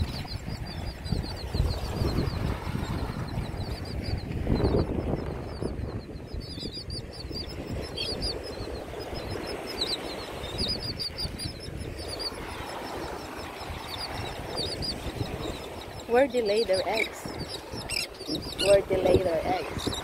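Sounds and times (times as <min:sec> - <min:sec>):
seabirds chirping calls: 0:00.0 - 0:20.0
surf rumble: 0:00.0 - 0:20.0
wind: 0:00.0 - 0:20.0.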